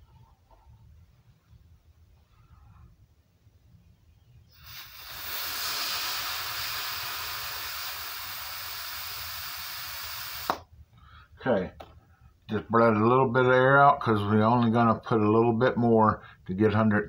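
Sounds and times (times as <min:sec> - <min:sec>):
air hissing from canister valve: 0:04.5 - 0:10.7.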